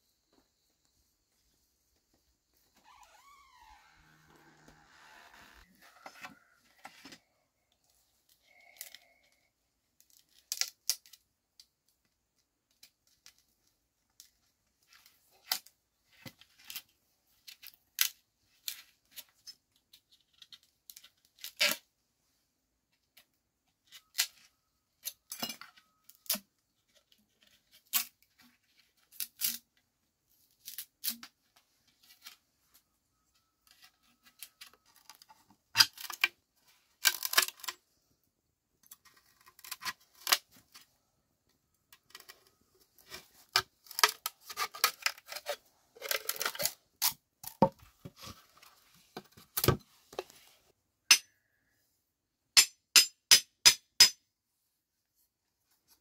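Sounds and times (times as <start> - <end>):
bamboo ripping: 10.0 - 11.2, 39.0 - 40.6, 43.0 - 47.7
bamboo cracking and splintering: 10.0 - 11.7, 17.5 - 18.8, 29.0 - 29.6, 33.6 - 36.4, 37.0 - 37.8, 38.8 - 40.6, 41.9 - 47.8.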